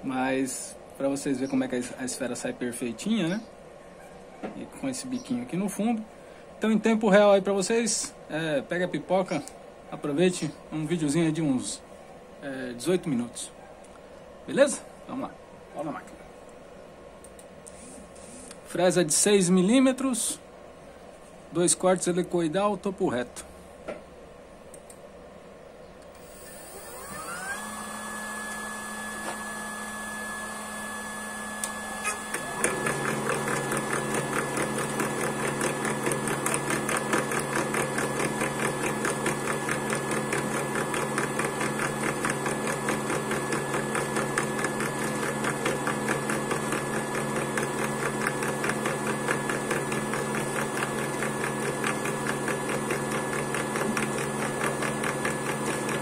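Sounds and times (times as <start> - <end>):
lathe motor whining: 26.2 - 56.0
lathe rattling while cutting wood: 32.1 - 56.0.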